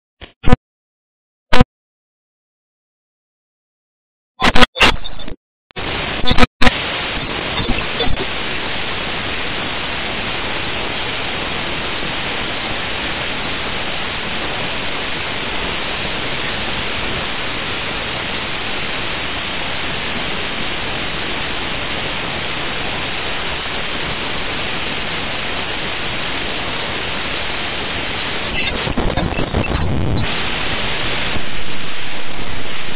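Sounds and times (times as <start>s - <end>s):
crackles: 4.4s - 8.3s
dense static hiss: 5.8s - 32.9s.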